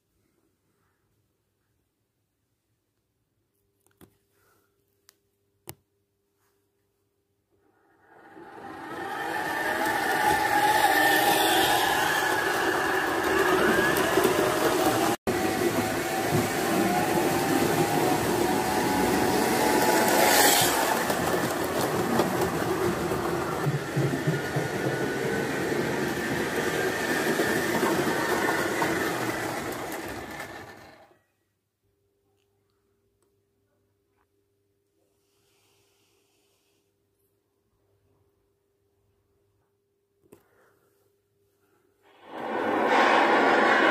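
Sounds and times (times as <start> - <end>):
wheels rolling on track: 7.9 - 31.2, 42.1 - 43.9
model train motor whine: 8.0 - 31.1.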